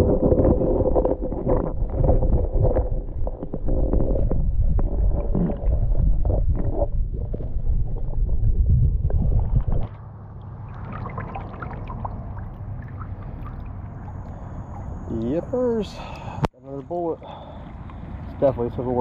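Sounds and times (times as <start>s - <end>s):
underwater knocks and bumps: 0.0s - 10.0s
water dripping and running: 9.0s - 15.8s.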